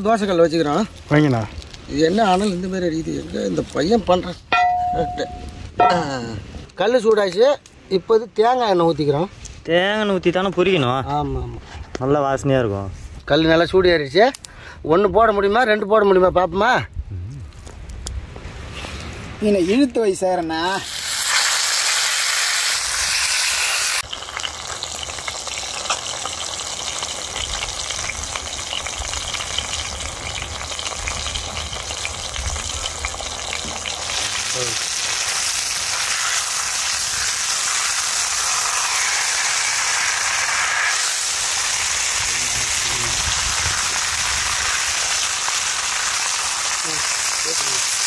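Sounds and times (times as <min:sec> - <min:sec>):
fish sizzling on a griddle: 0:00.0 - 0:05.9, 0:20.5 - 0:48.0.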